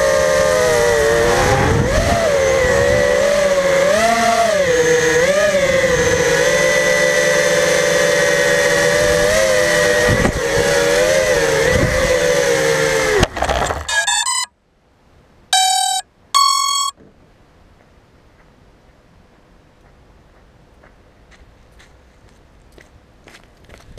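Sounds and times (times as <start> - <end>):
drone motors whining: 0.0 - 14.5, 15.6 - 16.9
short electronic beeps: 13.9 - 14.5, 15.6 - 17.0.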